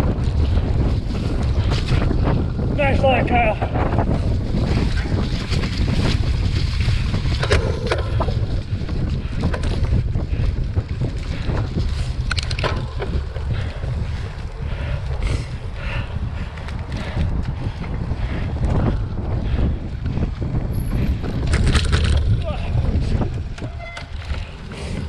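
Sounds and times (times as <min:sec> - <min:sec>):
bike rattling over bumpy ground: 0:00.0 - 0:25.0
wind buffeting microphone: 0:00.0 - 0:25.0.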